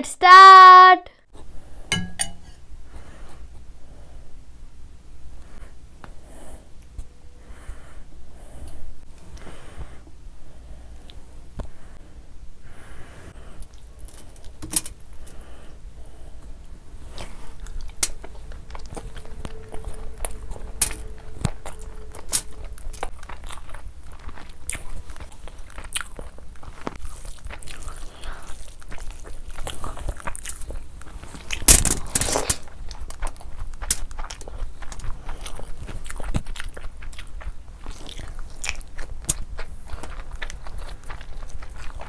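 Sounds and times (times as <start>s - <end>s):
biting and chewing: 17.1s - 42.0s.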